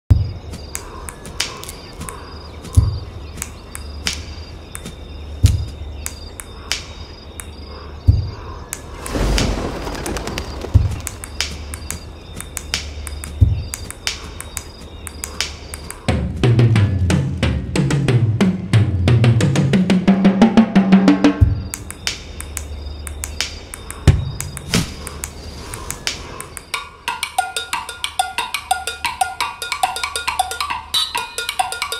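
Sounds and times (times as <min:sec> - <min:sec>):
cricket-like chirping: 0:00.1 - 0:31.9
deep bass thuds: 0:08.1 - 0:08.4
sharp clicks: 0:09.9 - 0:16.1, 0:21.7 - 0:26.7.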